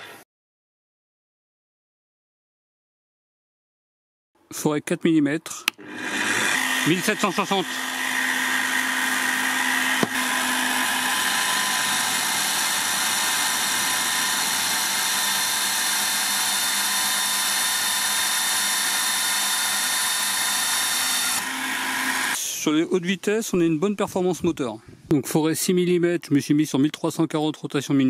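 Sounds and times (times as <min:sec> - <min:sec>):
drill bit grinding steel: 0:05.7 - 0:22.4
drill press motor hum: 0:05.7 - 0:22.4.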